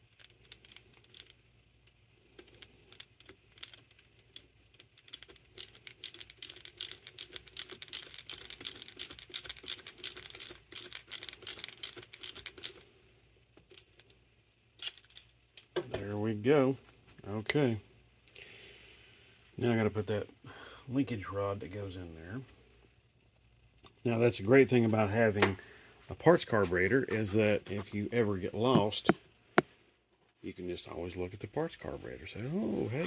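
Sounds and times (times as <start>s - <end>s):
nut driver rapid metallic clicks: 2.5s - 12.8s.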